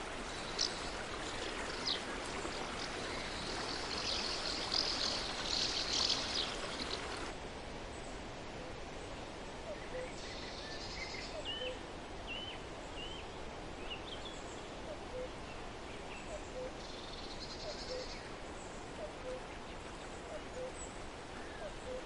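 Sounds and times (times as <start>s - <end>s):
river water flowing: 0.0s - 22.0s.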